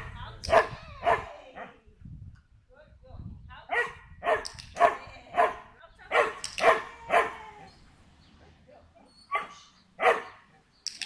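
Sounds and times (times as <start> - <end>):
small dog barking: 3.7 - 7.4, 9.3 - 10.4.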